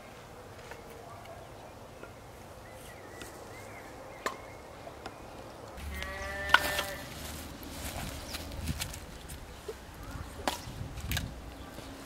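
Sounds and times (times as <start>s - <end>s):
sheep bleating: 5.8s - 7.1s.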